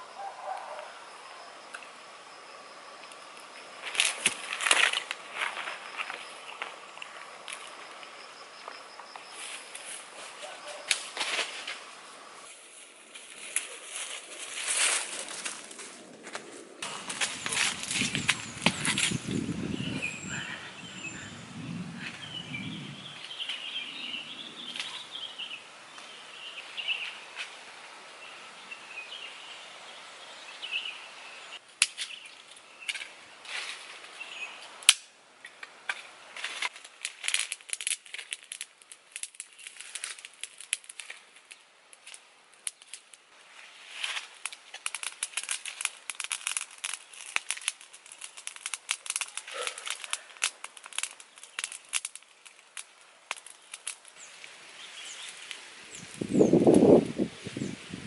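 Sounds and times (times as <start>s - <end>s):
fire crackling and popping: 3.0s - 10.3s, 10.9s - 23.7s, 34.7s - 58.0s.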